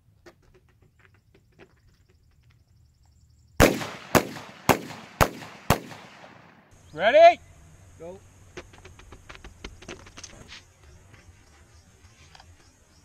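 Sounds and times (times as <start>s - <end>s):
shotgun shots: 3.6s - 6.7s.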